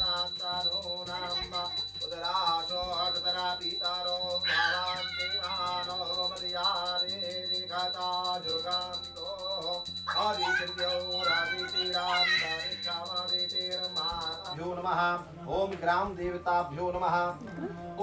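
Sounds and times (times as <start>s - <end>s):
hand bell ringing: 0.0s - 14.6s
person chanting mantras: 0.0s - 15.8s.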